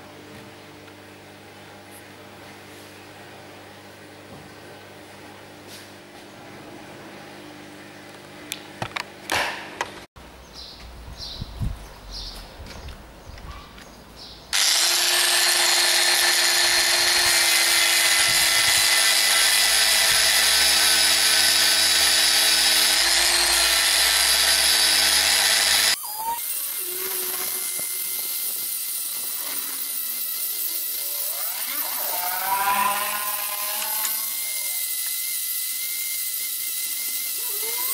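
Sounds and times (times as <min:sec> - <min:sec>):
rotary tool sanding wood: 0:14.5 - 0:37.9.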